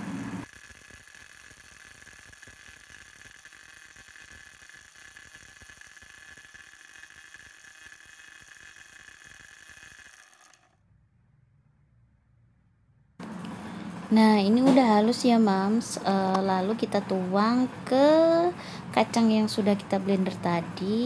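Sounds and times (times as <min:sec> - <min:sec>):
electric blender running: 0:00.0 - 0:10.8.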